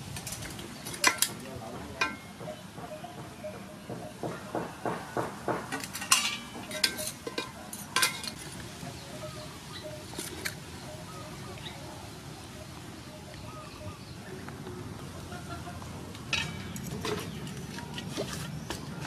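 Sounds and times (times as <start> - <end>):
metal utensils clinking on pot: 0.1 - 2.4, 5.7 - 8.6, 16.3 - 18.5.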